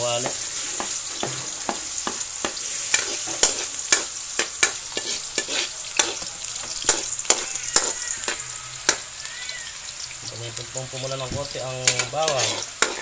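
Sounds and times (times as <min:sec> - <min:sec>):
garlic sizzling in hot oil: 0:00.0 - 0:13.0
stirring clicks in a wok: 0:00.2 - 0:09.2, 0:11.8 - 0:13.0.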